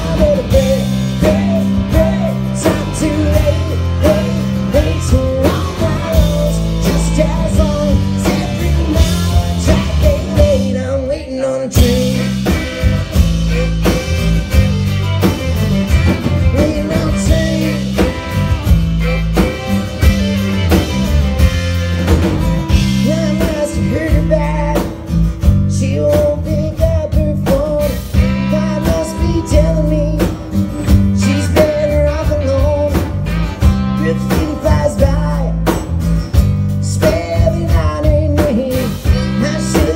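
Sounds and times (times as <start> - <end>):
lead vocal singing: 0.0 - 14.4, 16.2 - 18.4, 22.7 - 35.8, 36.8 - 39.9
live country rock band playing: 0.0 - 39.9.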